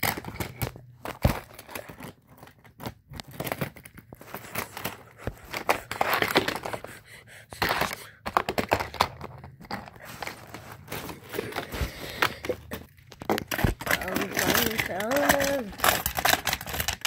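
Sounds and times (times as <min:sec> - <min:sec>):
toy cars clicking and tapping: 0:07.5 - 0:10.1, 0:11.3 - 0:17.0.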